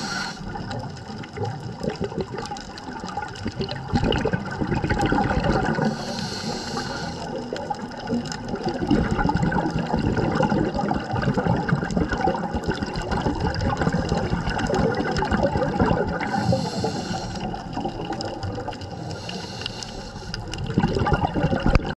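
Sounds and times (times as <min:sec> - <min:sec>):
high hiss: 0:00.0 - 0:00.5, 0:05.9 - 0:07.2, 0:16.3 - 0:17.5
underwater bubbling and gurgling: 0:00.0 - 0:21.9.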